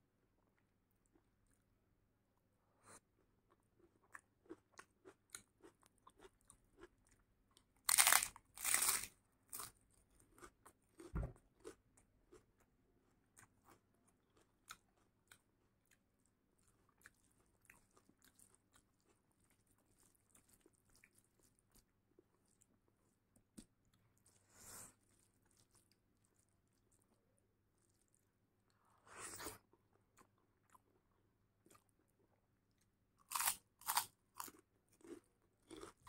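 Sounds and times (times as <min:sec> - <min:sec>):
soft chewing and mouth clicks: 0:00.3 - 0:07.8, 0:09.5 - 0:36.0
loud crunching bites: 0:07.9 - 0:09.7, 0:33.2 - 0:36.0.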